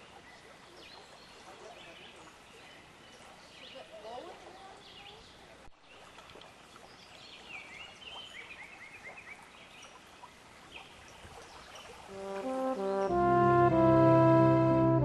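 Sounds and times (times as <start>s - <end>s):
songbirds chirping: 0.0s - 14.4s
horn music: 12.1s - 15.0s.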